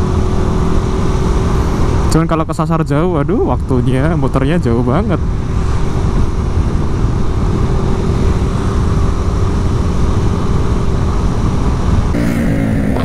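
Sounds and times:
motorcycle engine cruising: 0.0 - 2.2, 5.1 - 13.0
wind buffeting microphone: 3.2 - 12.2.

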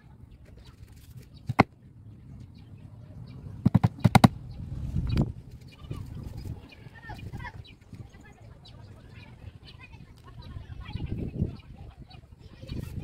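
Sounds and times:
hammer tapping on wood: 3.7 - 4.3.

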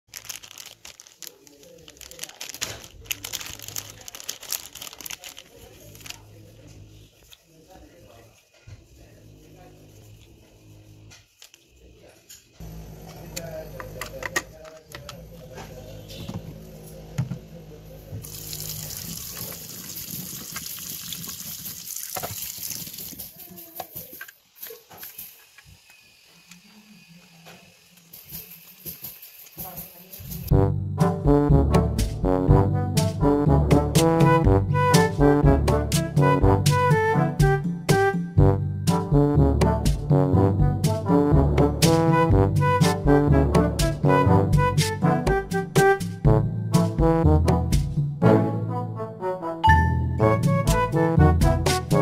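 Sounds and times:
plastic packaging crinkling: 0.0 - 6.5
tap water running into sink: 18.2 - 23.4.

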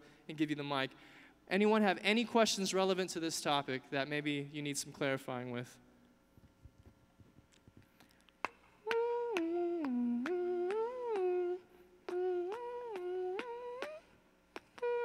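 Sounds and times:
man humming a tune: 8.8 - 15.0.

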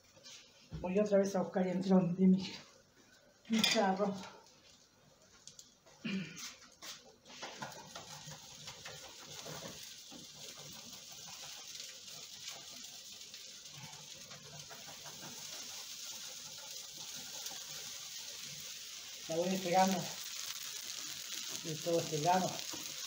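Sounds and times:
tortilla sizzling in a pan: 2.9 - 23.0
spatula scraping a pan: 7.3 - 19.2.

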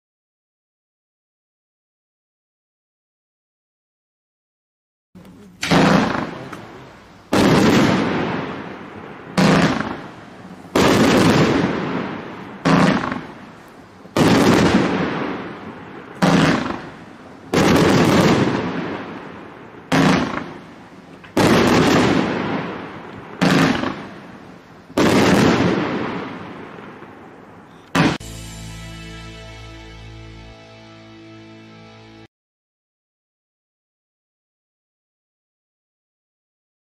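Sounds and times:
fireworks cake firing reports: 5.2 - 28.4.

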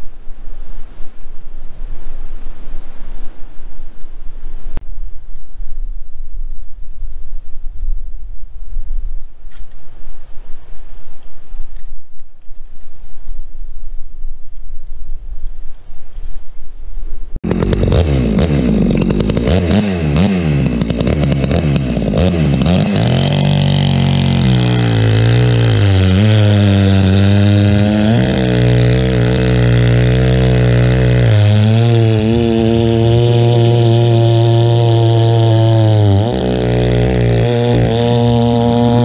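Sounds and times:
wind on microphone: 0.0 - 17.4, 36.6 - 39.0
chainsaw revving and cutting: 17.4 - 39.0.

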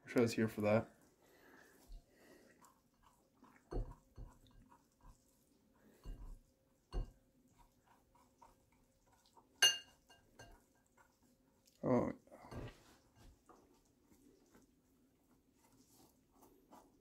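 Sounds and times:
fork clinking on glass: 9.6 - 10.6
fork scraping squash: 15.2 - 17.0.

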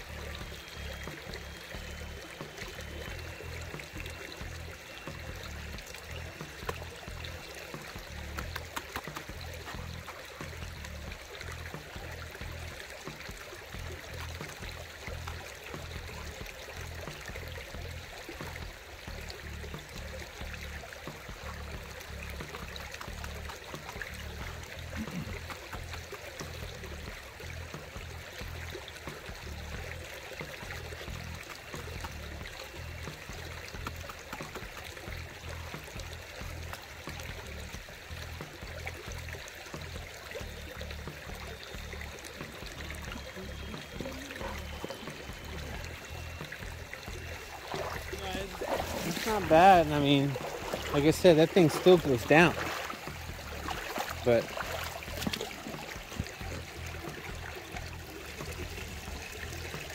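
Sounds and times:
creek water trickling: 0.0 - 59.9
music with pulsing bass: 0.0 - 59.9.

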